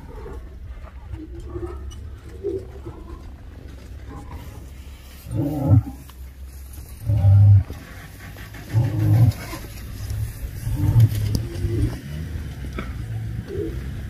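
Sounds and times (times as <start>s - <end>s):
lion roaring: 5.2s - 6.0s, 7.0s - 8.0s, 8.6s - 14.0s.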